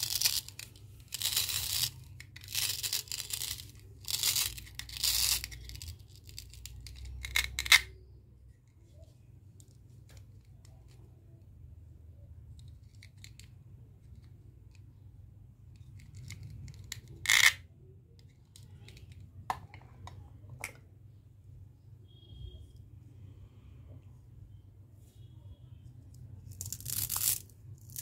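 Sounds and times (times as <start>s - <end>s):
plastic toy pieces clicking: 0.0s - 7.9s, 12.5s - 14.9s, 15.8s - 17.6s.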